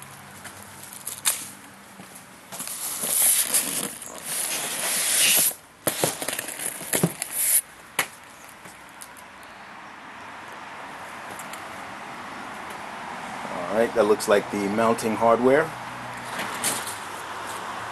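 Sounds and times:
cardboard box scraping and rustling: 2.6s - 7.6s.

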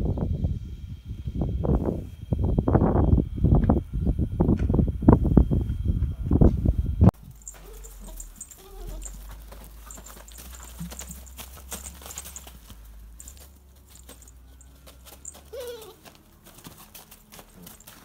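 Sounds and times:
puppies rustling in straw: 7.2s - 18.0s
puppy whimpering: 7.4s - 10.2s, 15.2s - 16.2s.

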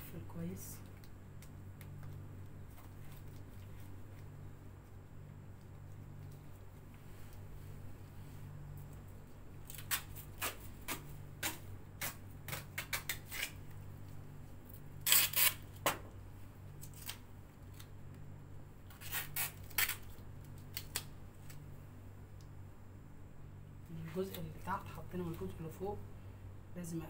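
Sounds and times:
steady low hum: 0.0s - 27.0s
tape snips and crackles: 9.6s - 13.8s, 15.0s - 16.0s, 16.8s - 18.0s, 18.9s - 21.6s.

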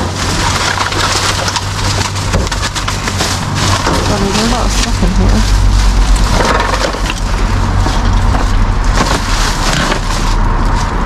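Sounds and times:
plastic bags rustling: 0.0s - 11.0s.

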